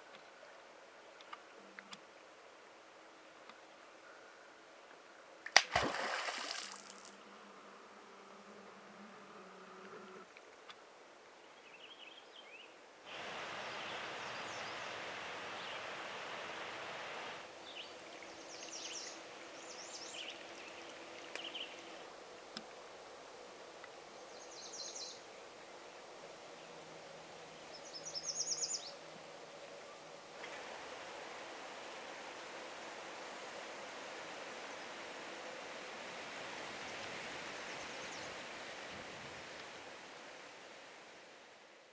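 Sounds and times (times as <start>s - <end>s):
steady outdoor hiss: 0.0s - 41.9s
songbirds chirping and trilling: 13.5s - 22.0s, 24.1s - 25.8s, 27.4s - 30.2s.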